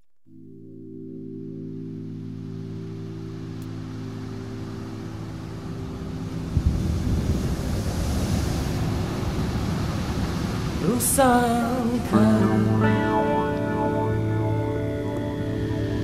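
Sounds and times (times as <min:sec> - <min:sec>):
held synthesizer chord: 0:00.2 - 0:07.4, 0:11.4 - 0:16.0
rush of noise: 0:02.2 - 0:16.0.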